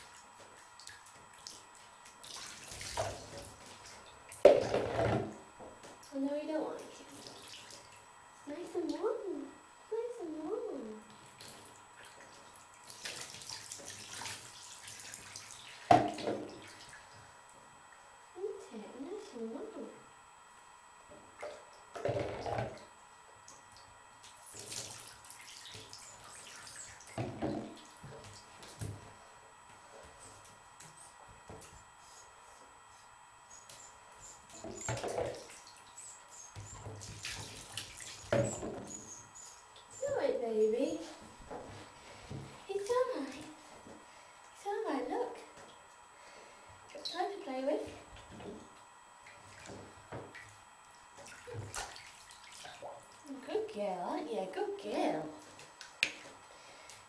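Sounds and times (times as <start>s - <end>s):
water splashing in bathtub: 0.0s - 9.2s, 10.8s - 18.1s, 21.3s - 29.2s, 33.6s - 44.6s, 46.9s - 53.5s, 55.2s - 57.0s
water splashing and trickling: 0.8s - 4.0s, 12.1s - 17.2s, 24.3s - 27.2s, 36.7s - 38.6s, 51.2s - 53.2s.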